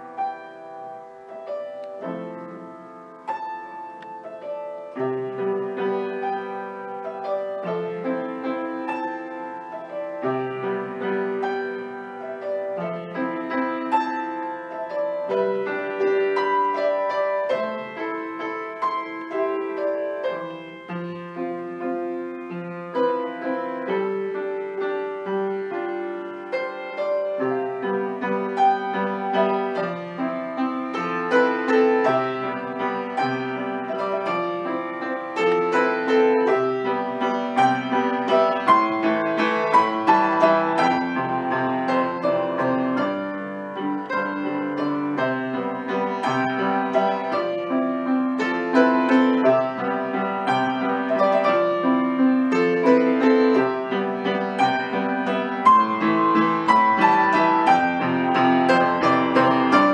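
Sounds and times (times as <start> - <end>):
solo upright piano: 0.0 - 59.9.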